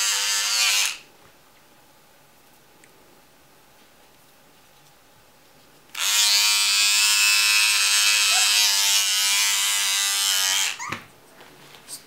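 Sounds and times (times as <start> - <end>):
electric trimmer buzzing: 0.0 - 1.0, 5.9 - 10.9.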